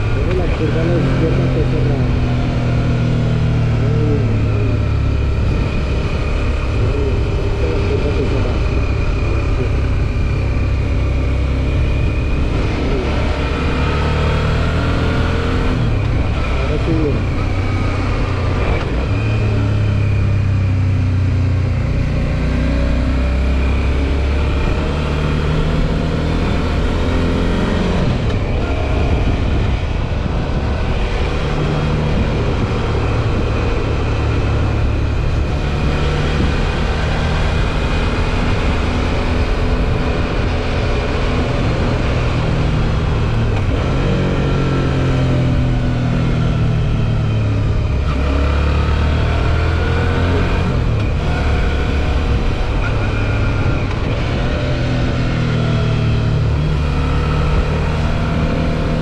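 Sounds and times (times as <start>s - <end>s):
motorcycle engine accelerating: 0.0s - 59.0s
rushing wind noise: 0.0s - 59.0s.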